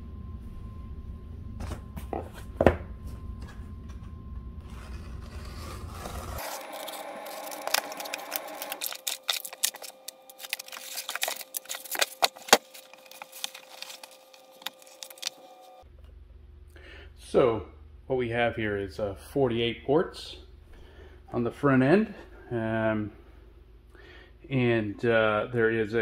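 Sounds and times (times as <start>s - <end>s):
cardboard scraping and rustling: 4.6s - 15.8s
packing wrap clicks and crinkles: 6.4s - 15.8s.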